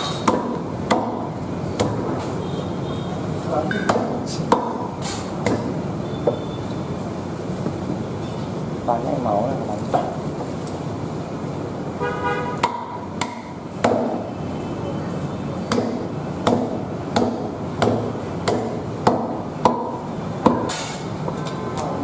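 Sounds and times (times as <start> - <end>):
cleaver chopping on wooden block: 0.0 - 2.0, 3.7 - 5.8, 12.6 - 14.2, 15.7 - 21.0.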